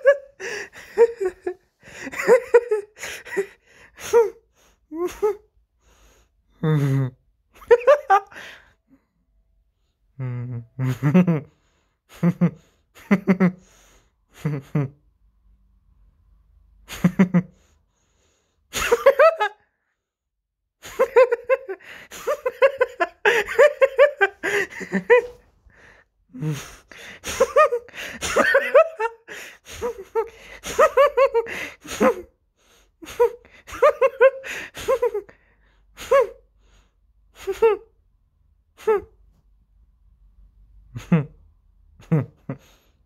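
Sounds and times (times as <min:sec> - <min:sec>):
person laughing high-pitched: 0:00.0 - 0:05.5, 0:06.6 - 0:08.4, 0:18.8 - 0:19.6, 0:20.8 - 0:25.4, 0:36.0 - 0:36.4, 0:37.4 - 0:37.9, 0:38.8 - 0:39.2.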